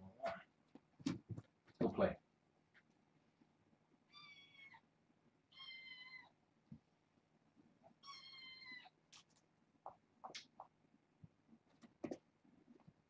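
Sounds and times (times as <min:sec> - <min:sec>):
kitten meowing: 0:04.1 - 0:04.8, 0:05.5 - 0:06.3, 0:08.0 - 0:08.9.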